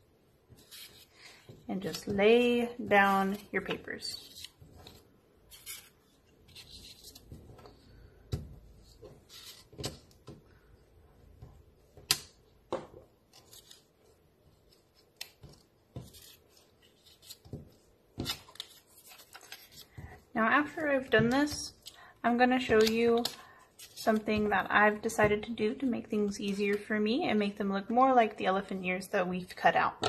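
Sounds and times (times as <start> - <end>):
paper rustling and tapping: 14.6 - 20.2, 22.6 - 25.6.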